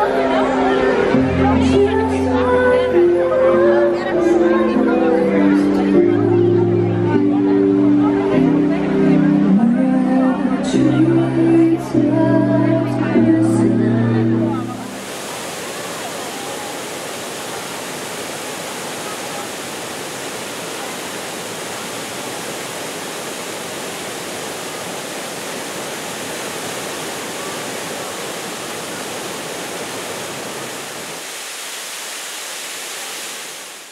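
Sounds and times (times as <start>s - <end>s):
waterfall pouring onto rocks: 14.9s - 33.9s.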